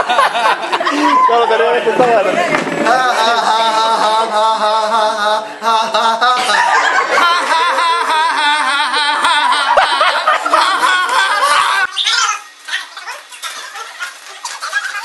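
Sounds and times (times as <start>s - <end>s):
young men laughing: 0.0s - 11.9s.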